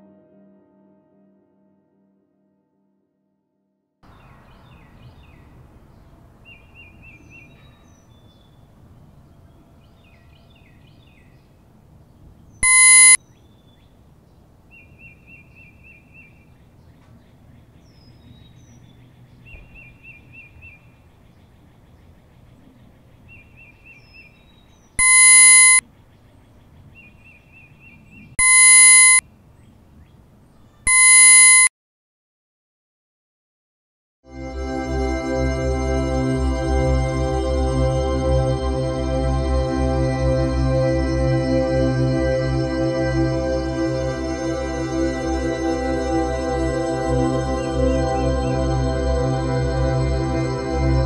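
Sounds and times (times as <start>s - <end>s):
birds chirping in trills: 4.1s - 31.4s, 42.6s - 51.0s
loud ringing tone: 12.6s - 13.2s, 25.0s - 25.8s, 28.4s - 29.2s, 30.9s - 31.7s.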